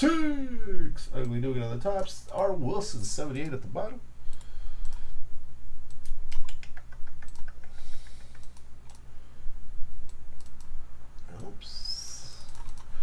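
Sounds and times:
steady low hum: 0.0 - 13.0
computer keyboard clicking: 5.9 - 9.0, 12.4 - 12.9
mouse clicking: 5.9 - 9.1, 10.0 - 11.5, 12.4 - 12.9.

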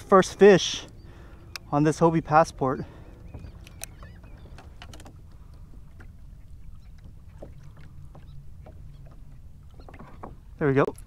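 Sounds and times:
water lapping against kayak hull: 0.0 - 11.0
small clicks and ticks: 3.3 - 5.5.

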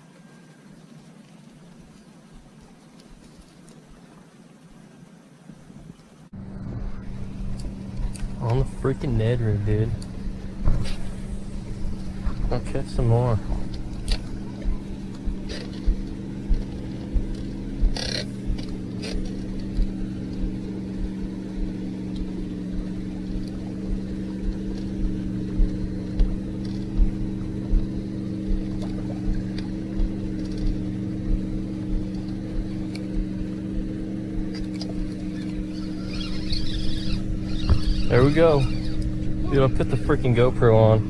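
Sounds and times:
boat motor humming: 0.0 - 41.0
low thumps against microphone: 9.8 - 39.4.

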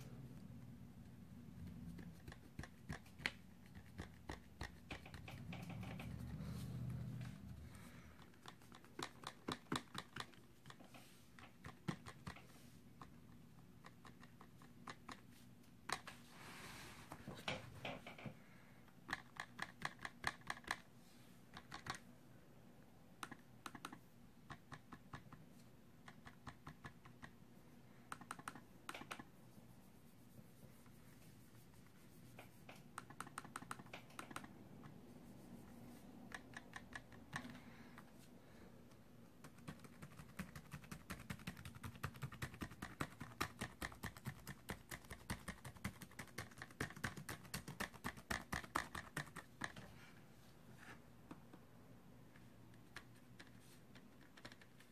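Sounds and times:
fast keyboard typing: 1.6 - 15.3, 19.0 - 20.9, 21.5 - 22.0, 26.0 - 27.4, 28.1 - 29.3, 32.7 - 35.0, 36.2 - 37.6, 39.4 - 49.8, 52.8 - 54.9
trackpad clicks and rattles: 2.0 - 6.4, 19.0 - 20.8, 21.5 - 22.1, 28.1 - 29.3, 32.7 - 35.0, 36.2 - 37.6.

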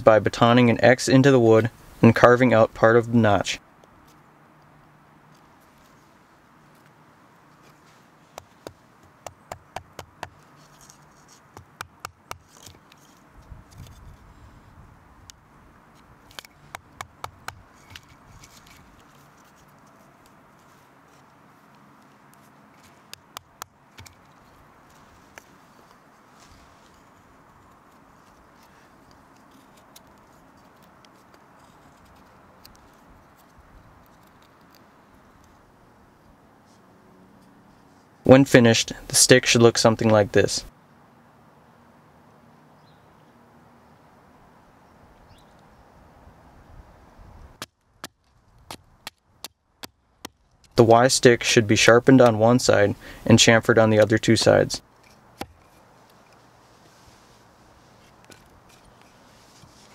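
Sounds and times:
knife carving wood stick: 7.6 - 14.3, 15.9 - 21.3, 26.8 - 34.9, 53.7 - 56.5, 57.8 - 59.9.

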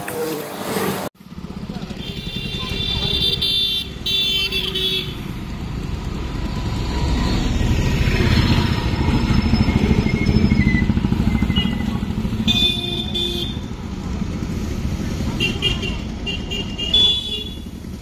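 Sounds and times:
motorcycle engine passing: 4.7 - 16.8.

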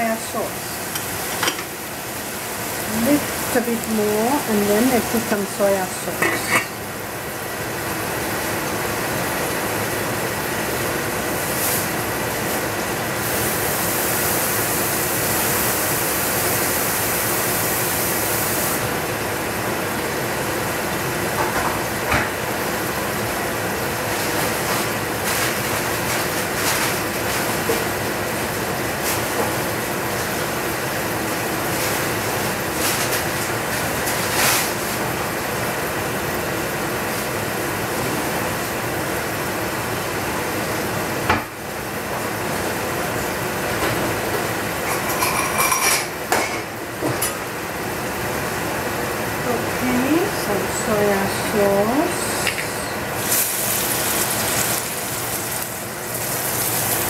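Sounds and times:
chicken sizzling in saucepan: 11.2 - 18.9, 50.4 - 57.0.

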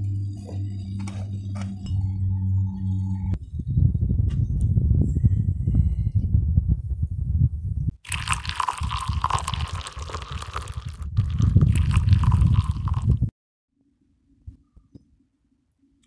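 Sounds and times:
wind buffeting microphone: 3.3 - 13.3.

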